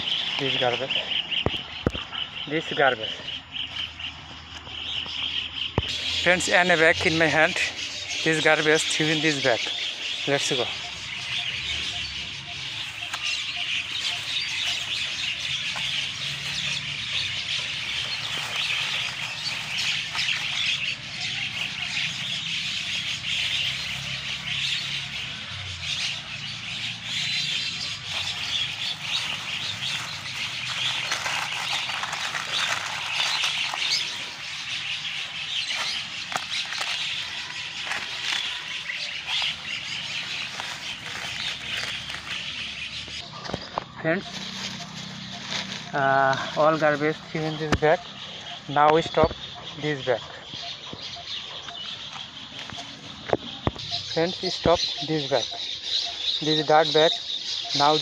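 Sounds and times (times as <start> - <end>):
birds chirping: 0.0 - 58.0
plastic bag and paper rustling: 12.6 - 25.4, 27.0 - 47.8.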